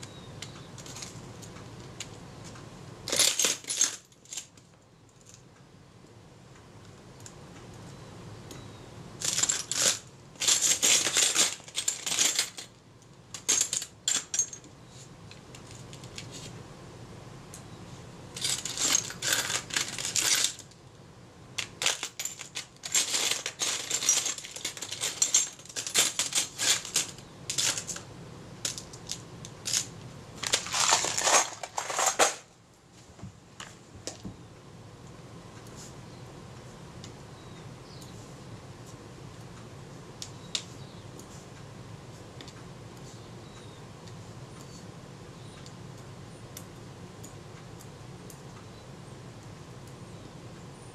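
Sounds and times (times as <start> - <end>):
small metal parts clinking: 0.4 - 1.5, 3.1 - 5.4, 9.2 - 14.7, 18.4 - 20.8, 21.6 - 32.4.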